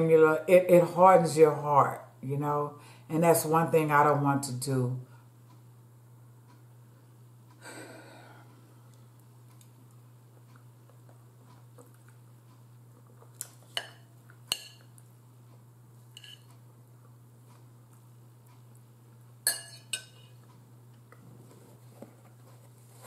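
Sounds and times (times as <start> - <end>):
steady low hum: 0.0 - 23.0
metal fork clinking on bowl: 13.8 - 14.9, 16.2 - 16.5, 19.4 - 20.4.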